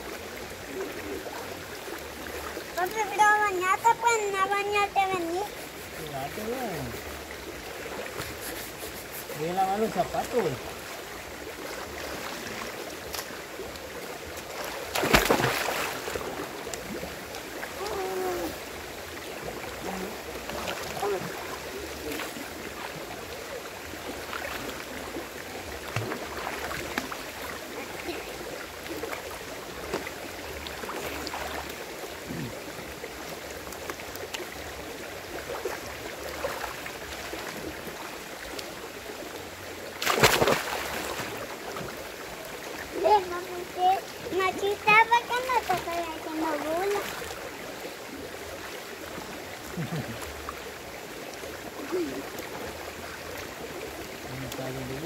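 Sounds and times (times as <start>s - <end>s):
water splashing and sloshing: 0.0s - 55.0s
loud splash into water: 14.9s - 16.2s, 40.0s - 41.4s.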